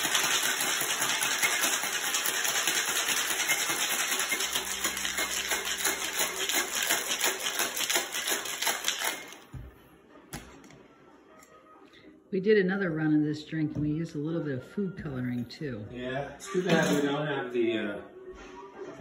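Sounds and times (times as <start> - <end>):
ice rattling in cocktail shaker: 0.0 - 9.4.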